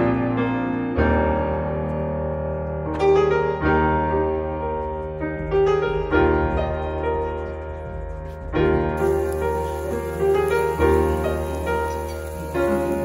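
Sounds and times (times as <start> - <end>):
slow piano music: 0.0 - 13.0.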